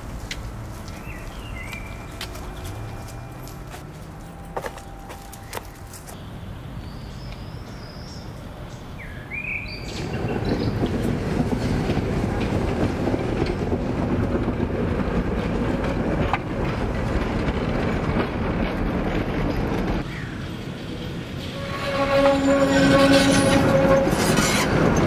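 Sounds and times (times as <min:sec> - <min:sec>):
tram wheels rumbling on rails: 0:00.0 - 0:06.2, 0:09.7 - 0:25.0
tram wheel squeal: 0:15.4 - 0:25.0.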